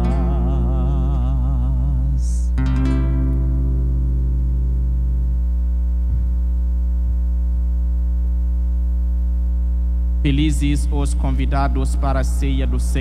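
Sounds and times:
acoustic guitar chord ringing: 0.0s - 6.9s
electrical mains hum: 0.0s - 13.0s
faint low knock: 6.0s - 6.6s.

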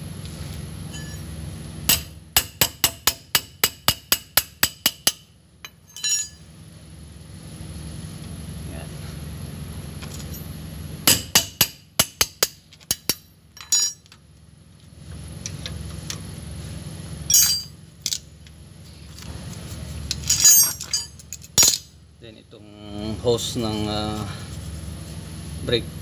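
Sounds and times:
steady low hum: 0.0s - 26.0s
metal clatter: 4.8s - 6.5s, 11.1s - 14.2s, 17.3s - 18.5s, 20.1s - 21.9s
metal tools clinking: 5.6s - 6.5s, 12.7s - 14.2s, 17.3s - 18.3s, 20.1s - 21.9s.

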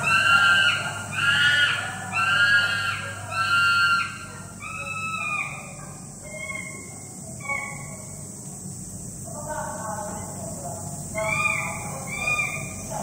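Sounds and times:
chimpanzee screaming: 0.0s - 7.8s, 11.2s - 12.8s.

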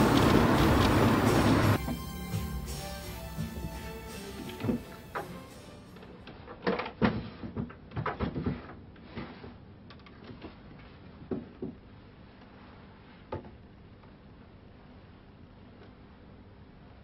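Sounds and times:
wooden drawers knocking and clunking: 6.6s - 8.7s.

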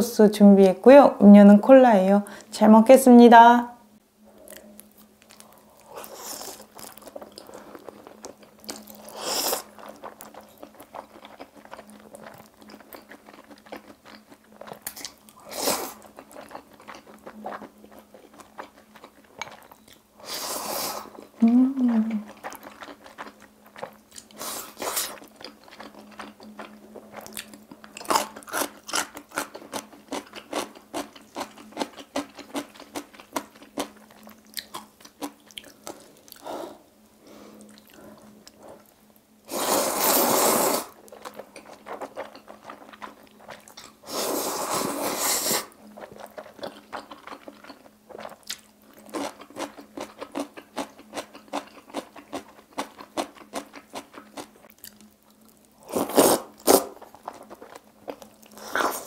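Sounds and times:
wet chewing and mouth clicks: 4.4s - 20.1s, 21.2s - 36.5s, 40.9s - 44.0s, 45.4s - 59.0s
loud noodle slurps: 9.0s - 9.7s, 15.4s - 16.1s, 20.2s - 21.2s, 24.4s - 25.2s, 39.5s - 41.0s, 44.0s - 45.8s, 55.8s - 57.0s.

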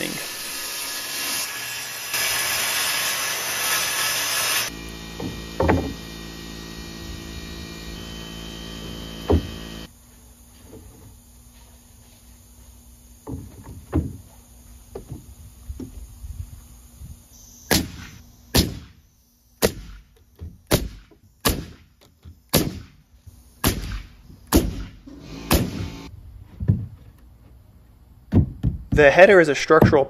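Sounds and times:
boards knocking: 5.2s - 6.0s, 9.2s - 9.6s
nail gun shots: 17.7s - 19.0s, 19.6s - 20.0s, 20.7s - 21.9s, 22.5s - 23.0s, 23.6s - 26.0s.

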